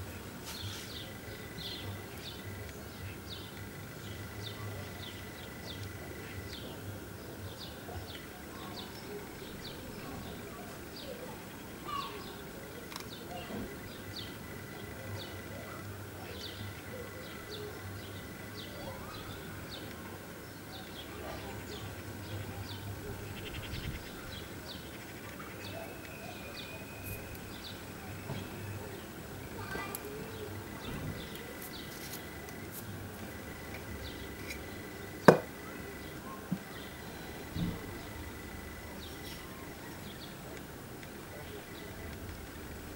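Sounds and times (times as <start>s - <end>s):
faint steady whine: 0.0s - 42.9s
watch knocking on tabletop: 35.3s - 35.5s.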